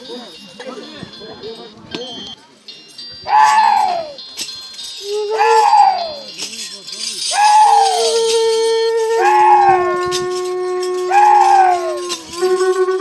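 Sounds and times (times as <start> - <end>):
shaken rattling: 2.9 - 13.0
horn-like wind instrument: 5.1 - 6.3, 7.3 - 13.0.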